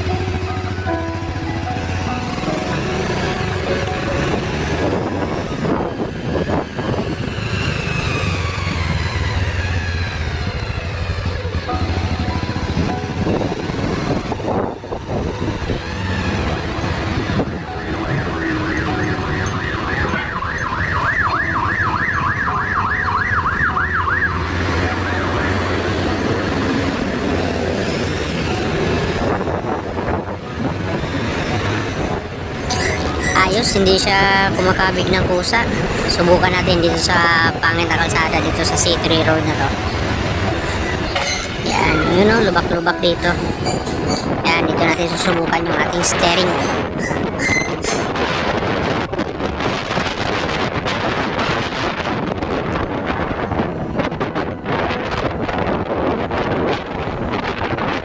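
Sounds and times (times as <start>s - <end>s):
motorcycle engine riding slowly: 0.0s - 21.4s
road and wind noise: 0.0s - 58.0s
siren yelping: 7.8s - 26.4s, 32.0s - 35.0s, 46.2s - 48.2s.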